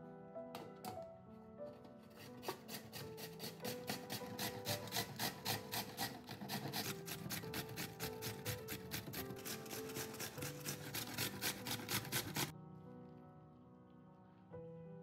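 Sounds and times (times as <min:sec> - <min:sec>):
background music: 0:00.0 - 0:15.0
potato grated on metal grater: 0:02.1 - 0:12.5.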